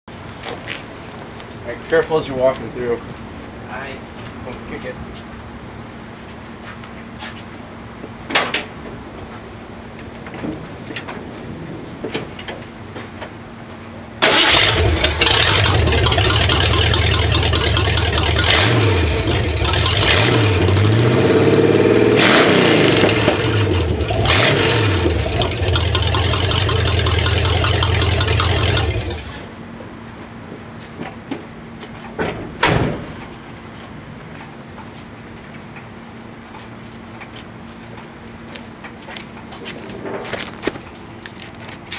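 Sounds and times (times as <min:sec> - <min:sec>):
engine starting revving and idling: 0:14.2 - 0:29.5.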